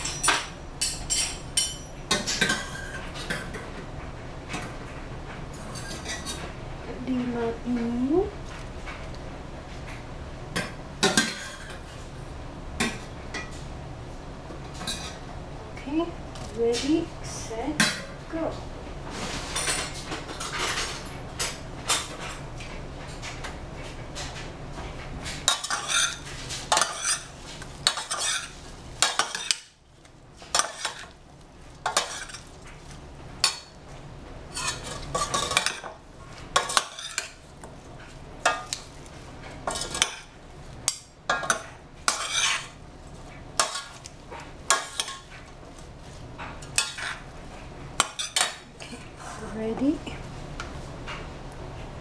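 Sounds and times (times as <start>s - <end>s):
metal spoons scraping a saucepan: 25.5s - 29.7s, 30.5s - 31.2s, 31.8s - 32.5s, 34.5s - 35.9s, 36.6s - 37.4s, 39.6s - 40.3s, 40.9s - 42.8s, 43.6s - 44.1s, 44.7s - 45.3s, 46.6s - 47.2s, 48.0s - 49.6s.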